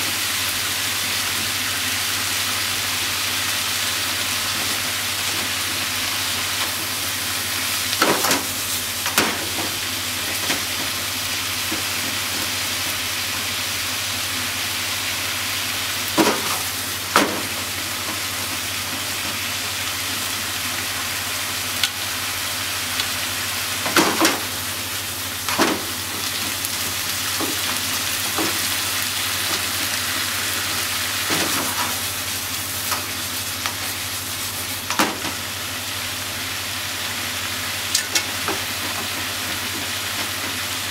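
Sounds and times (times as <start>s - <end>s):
meat and vegetables sizzling: 0.0s - 40.9s.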